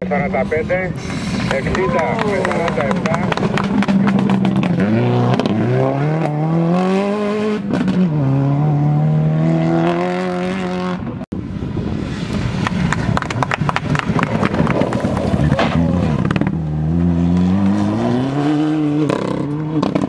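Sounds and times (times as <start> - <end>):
rally car engine crackles: 1.0 - 6.5, 12.2 - 20.0
rally car engine revving: 1.0 - 20.0.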